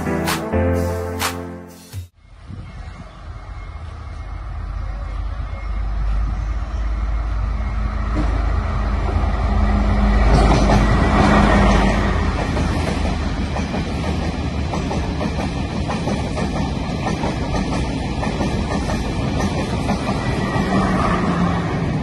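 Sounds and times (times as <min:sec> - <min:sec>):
train engine hum: 0:00.0 - 0:22.0
train wheels running on rails: 0:07.6 - 0:22.0.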